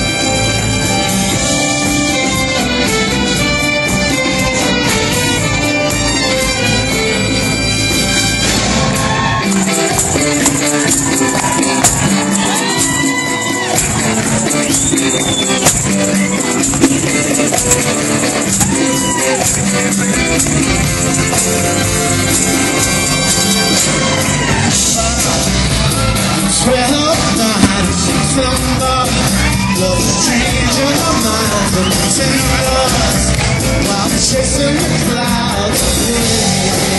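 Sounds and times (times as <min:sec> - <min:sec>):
live rock band with violins: 0:00.0 - 0:36.9
person singing: 0:22.4 - 0:36.9.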